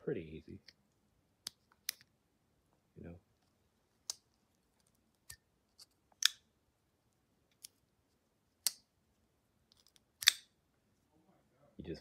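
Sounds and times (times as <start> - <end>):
folding knife clicking open and shut: 10.2 - 10.5.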